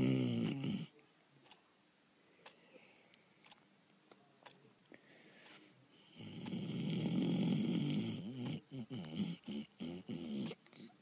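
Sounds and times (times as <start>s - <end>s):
person snoring: 6.1s - 10.6s.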